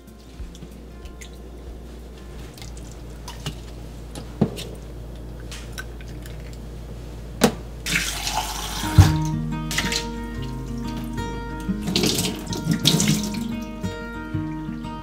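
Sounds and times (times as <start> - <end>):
tap water running into sink: 7.4 - 11.1, 11.8 - 13.6.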